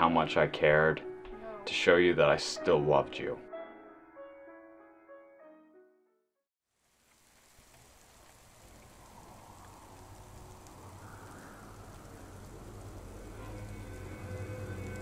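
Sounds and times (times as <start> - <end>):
steady rain: 6.7 - 15.0.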